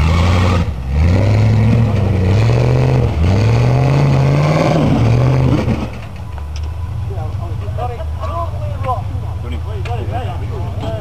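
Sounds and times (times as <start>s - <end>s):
vehicle engine revving hard: 0.0s - 6.0s.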